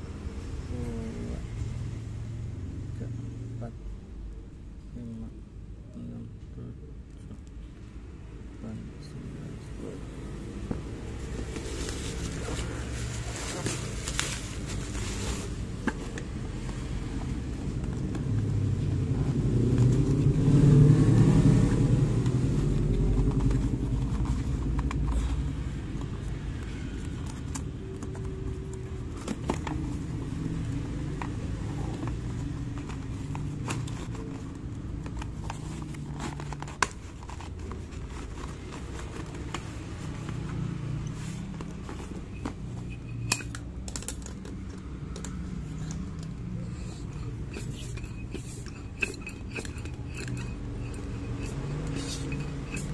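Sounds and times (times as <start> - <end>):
motor vehicle passing: 10.2 - 43.2, 44.6 - 52.9.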